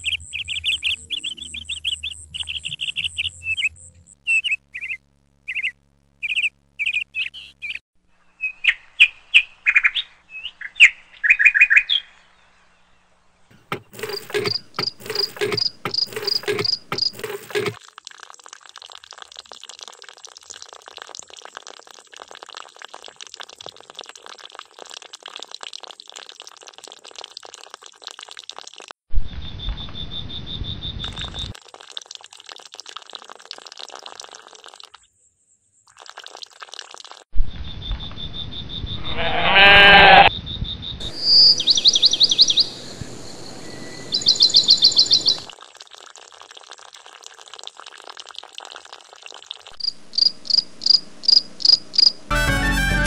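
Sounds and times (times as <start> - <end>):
bird chirping trills: 0.0 - 12.8, 13.5 - 17.7, 40.3 - 45.5
water trickling into a tub: 13.9 - 29.0, 31.1 - 35.1, 35.8 - 37.3, 45.4 - 50.0
sheep bleating: 39.0 - 40.3.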